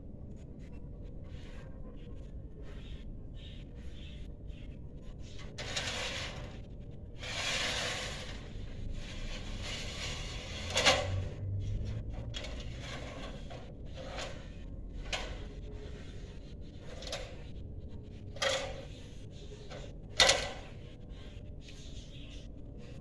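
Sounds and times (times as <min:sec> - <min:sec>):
scraping: 0:05.0 - 0:21.4.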